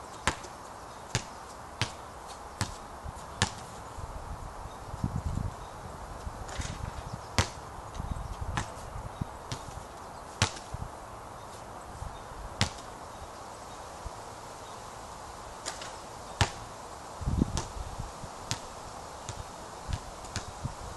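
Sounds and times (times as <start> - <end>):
steady background hiss: 0.0 - 20.9
basketball bouncing on hard court: 3.4 - 3.7, 8.6 - 8.8.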